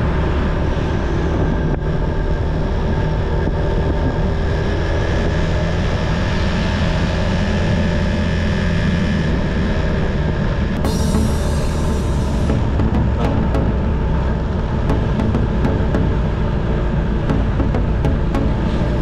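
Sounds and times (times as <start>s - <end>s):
wind noise on microphone: 0.0s - 13.2s
motorcycle engine droning: 0.0s - 19.0s.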